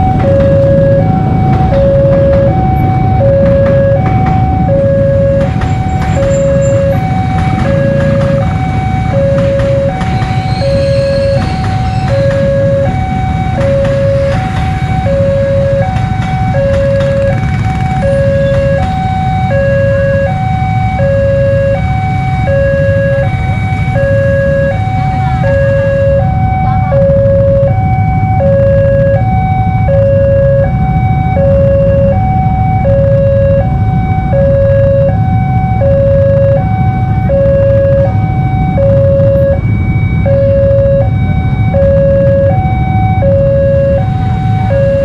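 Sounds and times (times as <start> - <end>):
level crossing alarm two-tone signal: 0.0 - 45.0
low rumble of passing train: 0.0 - 45.0.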